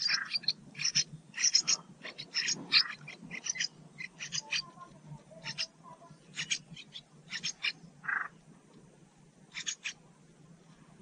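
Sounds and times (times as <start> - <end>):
bird nestlings begging calls: 0.0 - 4.8, 5.4 - 8.4, 9.5 - 10.0.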